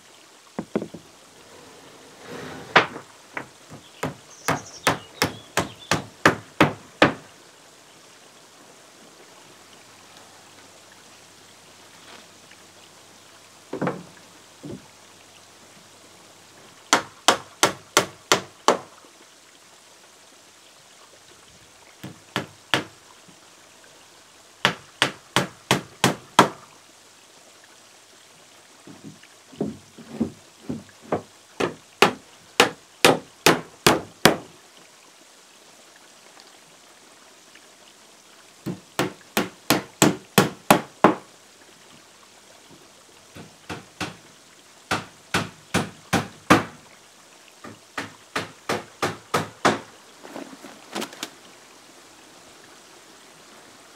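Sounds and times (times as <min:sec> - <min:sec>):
hammer driving nails into wood: 0:04.0 - 0:07.2.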